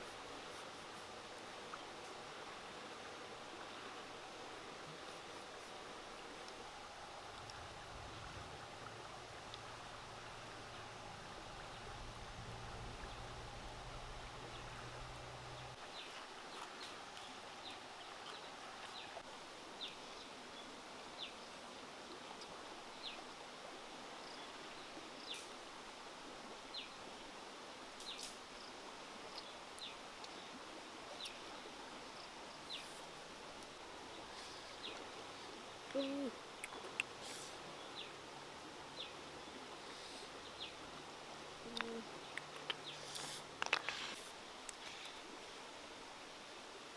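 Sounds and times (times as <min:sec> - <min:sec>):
steady hiss: 0:00.0 - 0:46.9
low hum: 0:06.6 - 0:15.8.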